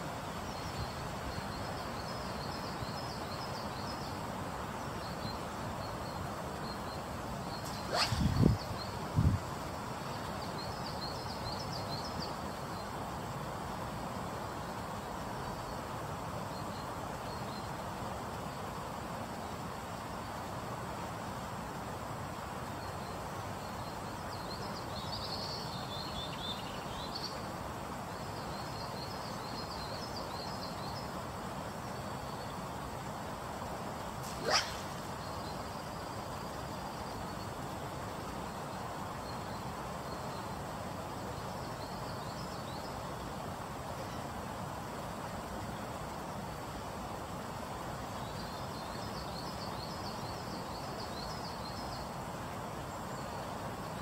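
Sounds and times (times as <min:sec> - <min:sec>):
small birds chirping: 0:00.4 - 0:13.0, 0:34.2 - 0:40.6
river rushing: 0:07.3 - 0:11.3, 0:32.8 - 0:36.8
sharp snap: 0:07.6 - 0:08.6.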